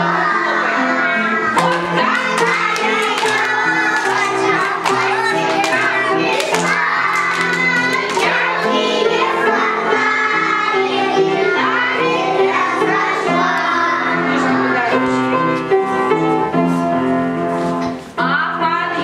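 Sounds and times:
young children singing: 0.0 - 15.4
instrumental accompaniment: 1.6 - 9.2.

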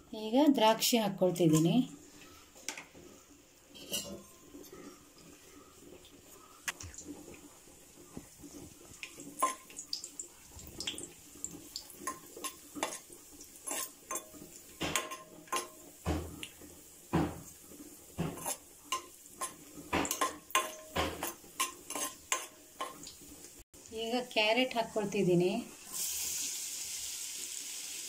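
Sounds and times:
spatula scraping and clinking pan: 3.7 - 5.1, 9.4 - 9.8, 12.0 - 16.3, 18.2 - 23.1.

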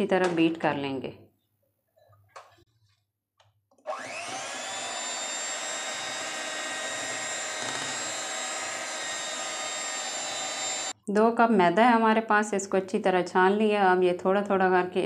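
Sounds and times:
electric hand mixer whining: 3.8 - 11.0.

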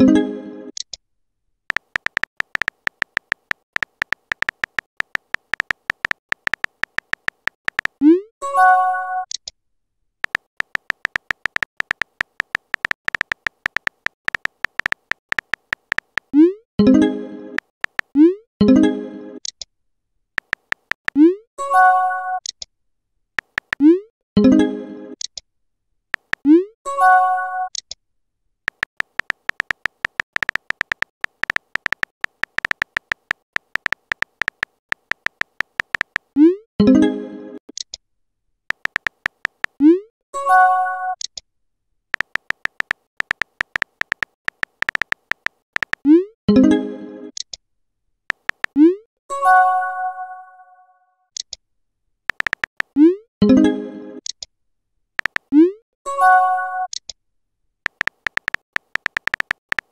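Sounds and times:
keyboard tap clicks: 1.7 - 8.0, 10.2 - 16.3, 17.6 - 18.2, 20.4 - 21.2, 23.4 - 23.8, 26.2 - 26.4, 28.7 - 36.3, 38.7 - 39.8, 42.2 - 46.0, 48.3 - 48.8, 52.3 - 52.9, 55.2 - 55.5, 57.9 - 59.9.

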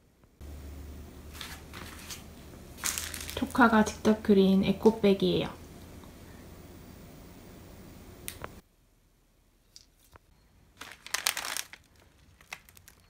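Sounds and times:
plastic packets crinkling: 1.3 - 3.8, 10.8 - 13.0.

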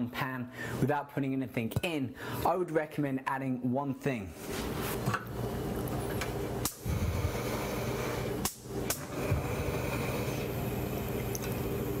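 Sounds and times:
steady hum: 4.4 - 12.0.

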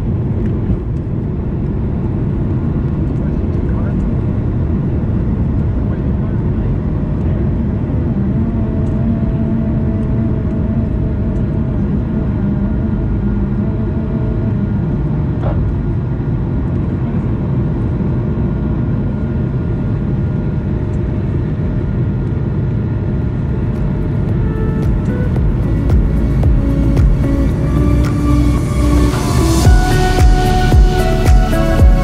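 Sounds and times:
jet engine roar in cabin: 0.0 - 32.0.

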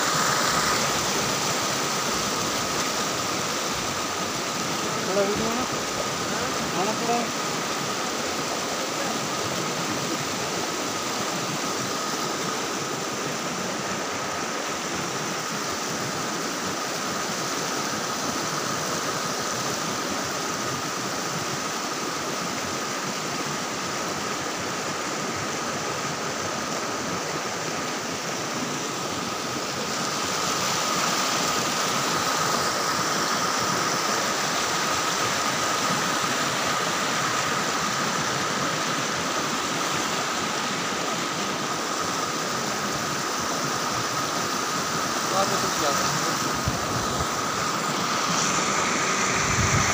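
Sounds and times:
mountain stream rushing: 0.0 - 49.9
thin high whine: 45.4 - 49.9.

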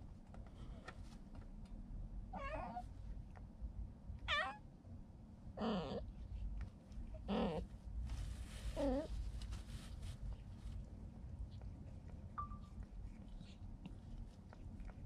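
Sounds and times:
cat meowing: 2.4 - 2.8, 4.3 - 4.6.

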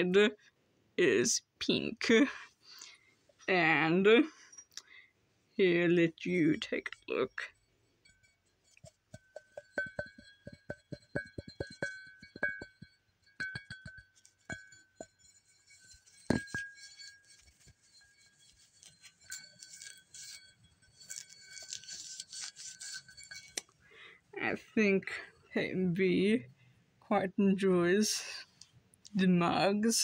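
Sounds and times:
ceramic mugs knocking: 8.1 - 20.4, 21.0 - 23.7.

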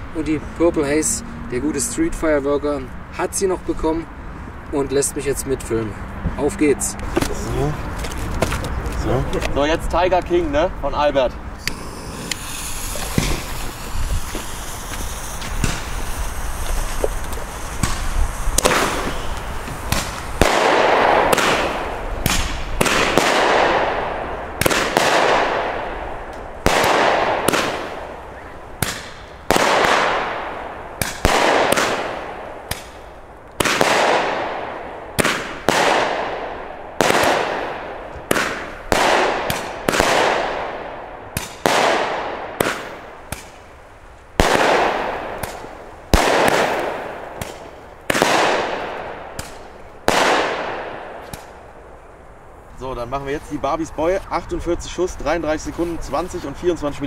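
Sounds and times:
firework bangs with crackle: 11.6 - 52.2.

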